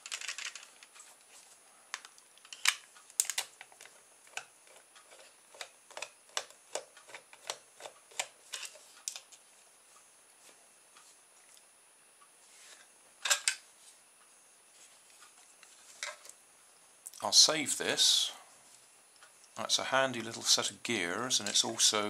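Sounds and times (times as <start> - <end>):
plastic parts clicking: 0.0 - 1.0, 1.9 - 9.4.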